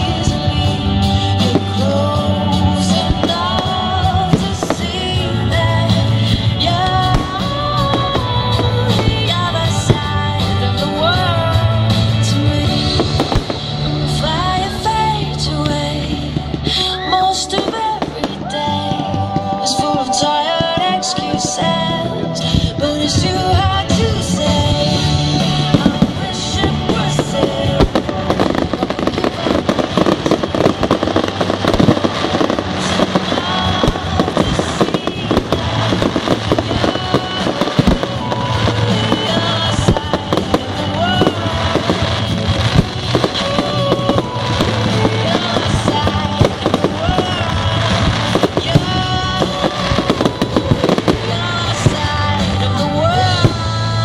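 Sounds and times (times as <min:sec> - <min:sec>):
fireworks bangs and crackles: 0:00.0 - 0:54.0
music playing: 0:00.0 - 0:54.0.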